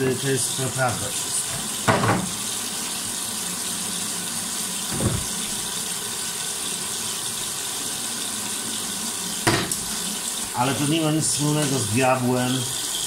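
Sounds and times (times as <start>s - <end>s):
tap water running into sink: 0.0s - 13.0s
dull knock: 1.9s - 2.4s.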